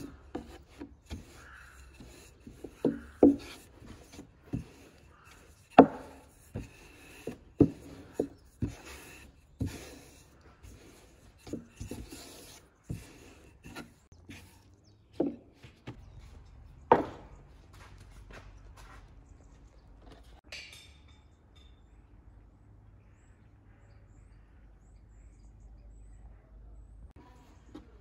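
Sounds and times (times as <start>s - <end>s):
rolling pin rubbing on dough: 0.0s - 14.6s
wooden knocks: 0.0s - 14.6s, 15.2s - 16.0s, 16.9s - 17.3s.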